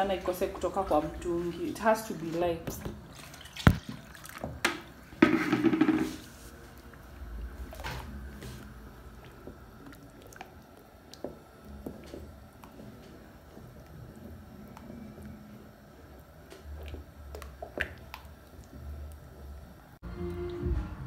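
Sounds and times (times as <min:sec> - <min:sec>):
stick knocking against metal pot: 0:05.2 - 0:06.2
porridge squelching while stirred: 0:05.7 - 0:20.0.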